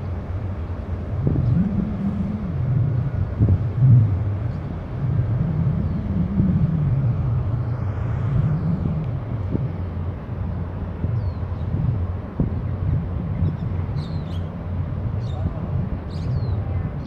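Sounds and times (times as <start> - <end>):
ship engine rumble: 0.0 - 17.0.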